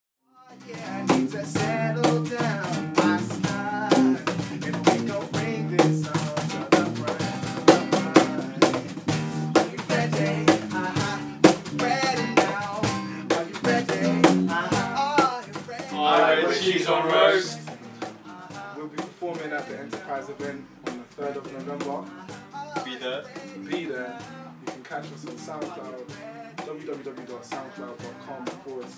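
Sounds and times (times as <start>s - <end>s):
man singing: 0.4s - 28.9s
strummed acoustic guitar: 0.5s - 28.9s
electric bass guitar: 0.6s - 15.2s
cajon beat: 0.6s - 28.9s.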